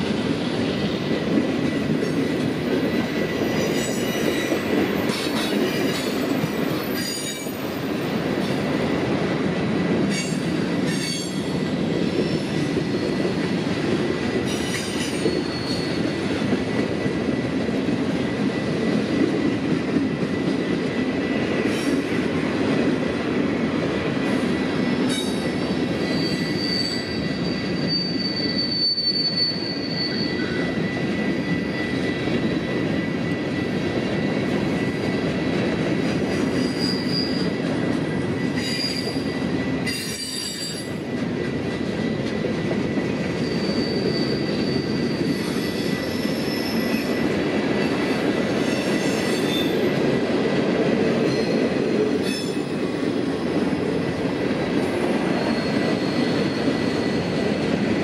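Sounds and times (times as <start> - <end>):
freight train cars rumbling: 0.0 - 58.0
high wheel squeal: 14.5 - 16.2, 25.2 - 32.2, 36.6 - 37.6, 43.4 - 47.2, 55.2 - 57.5.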